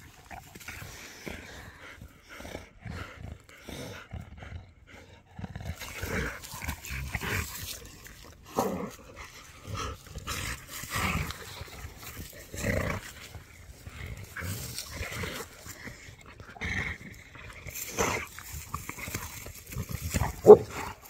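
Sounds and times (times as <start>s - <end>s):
dogs growling: 0.0s - 21.0s.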